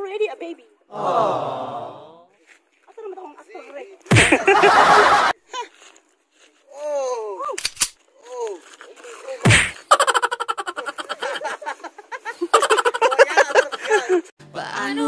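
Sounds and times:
people laughing: 4.1 - 5.4, 9.8 - 14.3.

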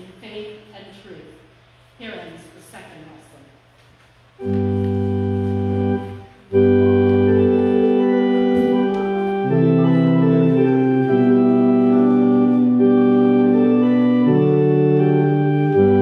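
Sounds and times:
church organ chords: 4.4 - 16.0.

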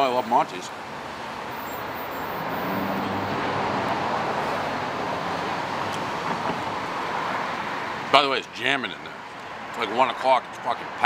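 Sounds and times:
street traffic rushing: 0.0 - 11.0
vehicle passing: 0.9 - 7.8.

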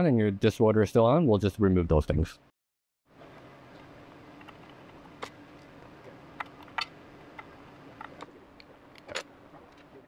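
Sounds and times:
faint room hum: 3.1 - 10.0.

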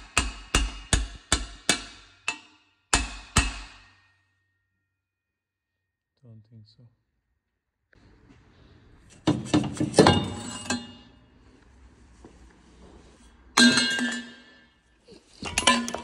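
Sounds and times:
metal parts clanking: 9.2 - 11.2, 13.6 - 16.0.

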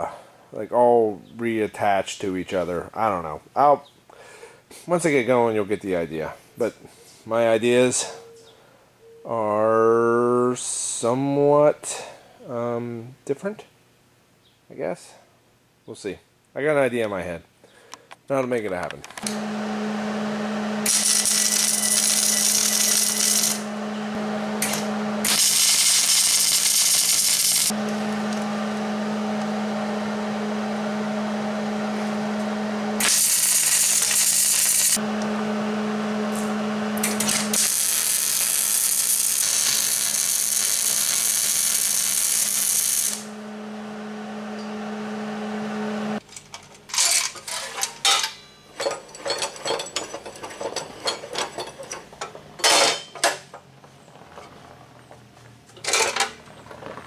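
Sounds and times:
welder hum: 19.2 - 46.2
crackling welding arc hiss: 20.8 - 23.7, 24.6 - 28.4, 33.0 - 35.0, 36.3 - 43.4
metal clanks and clicks: 46.2 - 53.7, 55.7 - 56.4.

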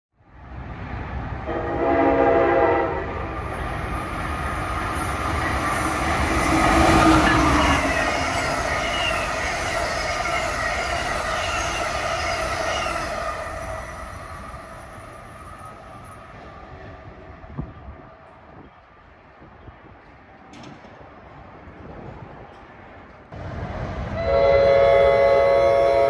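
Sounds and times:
train wheels rumbling on rails: 0.3 - 26.0
train horn: 1.4 - 3.2, 6.4 - 8.6, 24.2 - 26.0.

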